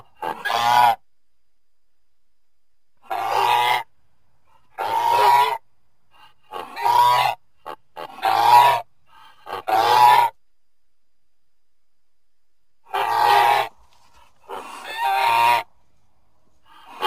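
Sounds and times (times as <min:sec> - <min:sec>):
goose honking: 0:00.0 - 0:01.0, 0:06.5 - 0:08.9, 0:09.5 - 0:10.4, 0:12.9 - 0:15.7.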